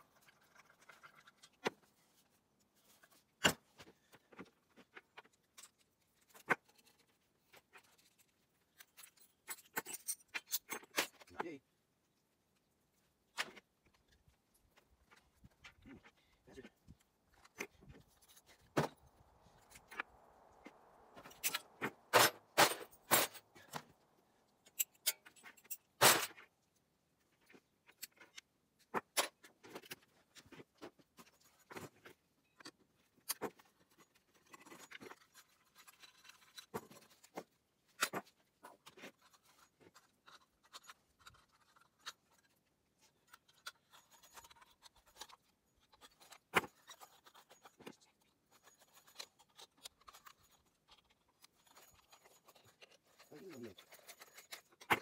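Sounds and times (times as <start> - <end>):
small metal and glass pieces clinking: 7.8 - 11.1, 39.2 - 54.9.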